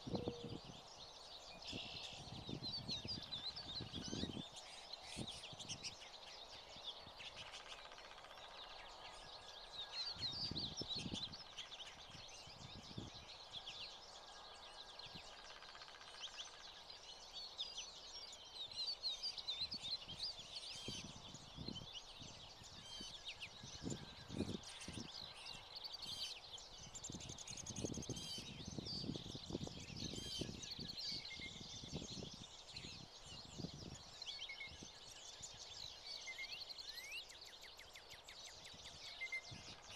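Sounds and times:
finches twittering and chirping: 0.0s - 39.9s.

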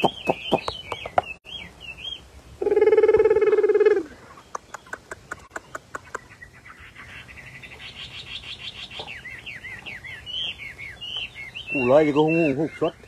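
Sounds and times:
fast high bird trill: 0.0s - 1.3s
bird singing sharp clipped notes: 0.0s - 2.2s, 4.4s - 13.0s.

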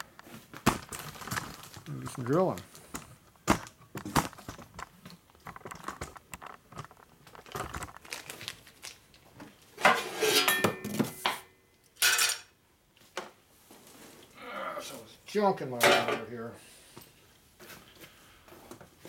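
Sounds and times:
metal parts clinking on metal table: 12.0s - 12.5s.

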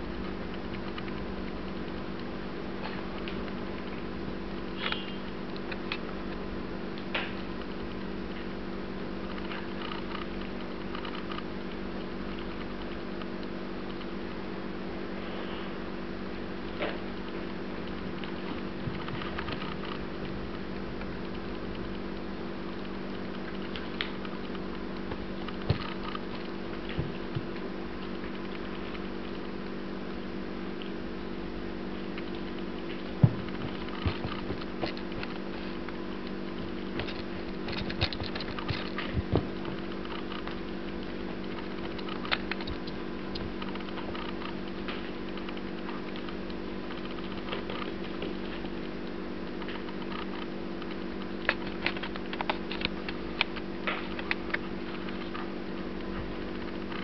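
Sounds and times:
steady low hum: 0.0s - 57.0s
paws tapping on tile floor: 16.8s - 29.5s, 32.0s - 57.0s.

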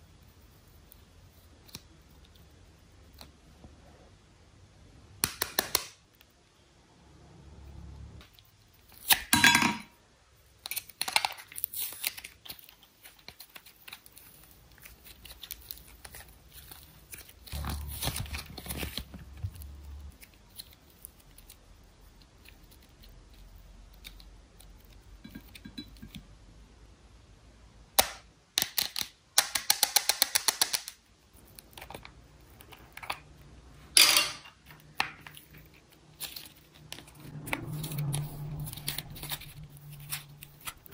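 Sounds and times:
slime squishing and crackling: 10.6s - 25.0s.

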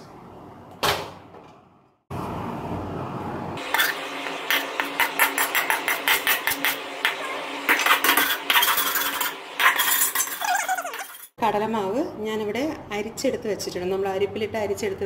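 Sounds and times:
spoon scraping metal pan: 3.6s - 11.3s.

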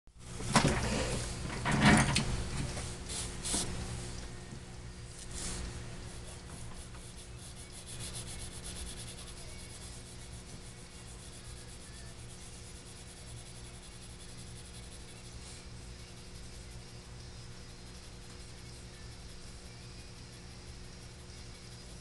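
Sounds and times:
pencil scratching on paper: 5.2s - 22.0s.

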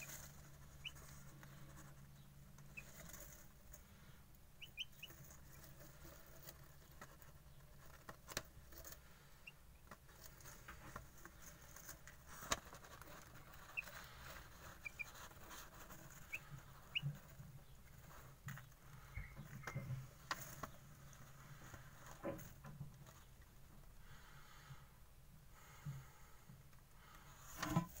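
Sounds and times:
chick peeping: 0.0s - 21.3s.

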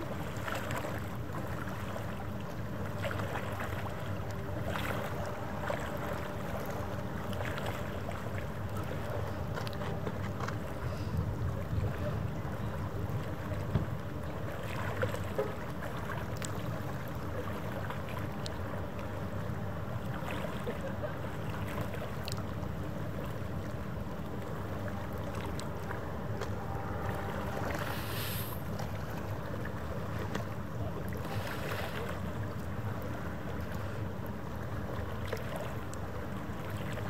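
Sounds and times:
distant ship engines rumbling: 0.0s - 37.0s
faint steady hum: 0.0s - 37.0s.

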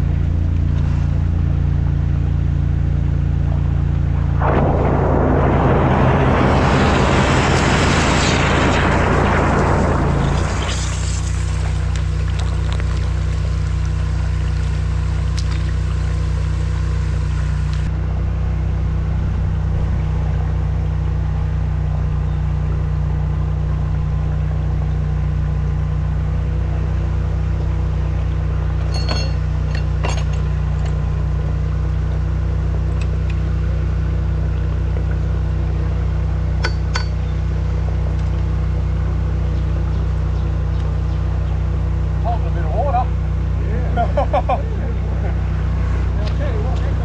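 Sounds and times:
engine droning: 0.0s - 47.0s
water gushing from pipe: 4.4s - 17.7s
sharp clinks: 28.8s - 31.0s.

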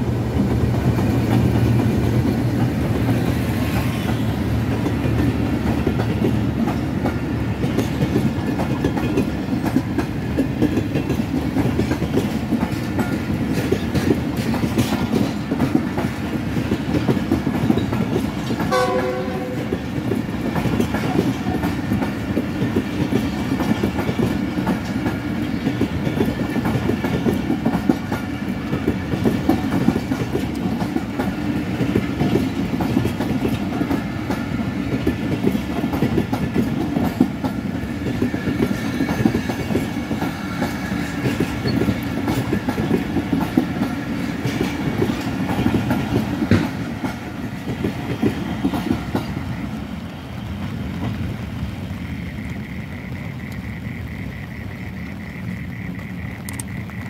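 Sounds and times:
train coaches rumbling past: 0.0s - 57.0s
wheels clattering over rail joints: 0.4s - 49.6s
short horn tone: 18.7s - 19.7s.

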